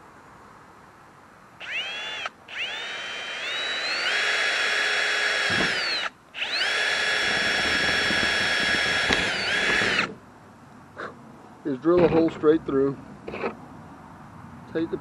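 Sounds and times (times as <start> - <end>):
cordless drill whining: 1.6 - 10.2.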